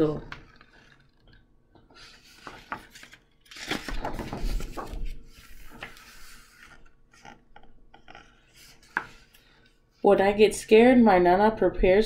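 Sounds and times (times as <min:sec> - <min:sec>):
paper pages rustling: 0:00.3 - 0:09.8
light clicks and taps handling book: 0:05.7 - 0:09.8.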